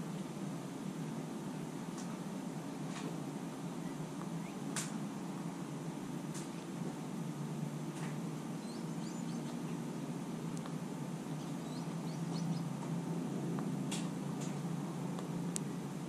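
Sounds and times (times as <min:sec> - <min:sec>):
steady low hum: 0:00.0 - 0:16.0
faint bird chirps: 0:03.7 - 0:04.7, 0:08.6 - 0:09.9, 0:11.4 - 0:12.7.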